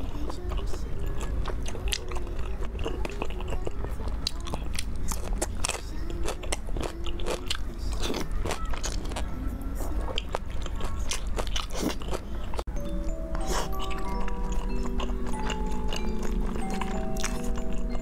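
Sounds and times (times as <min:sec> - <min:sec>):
person chewing food: 0:00.0 - 0:18.0
light music with held notes: 0:12.4 - 0:18.0.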